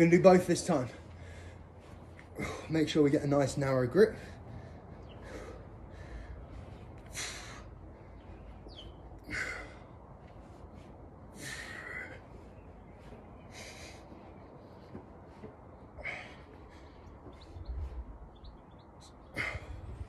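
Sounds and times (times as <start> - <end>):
heavy breathing from exertion: 0.6 - 3.2, 3.9 - 18.3, 19.0 - 20.0.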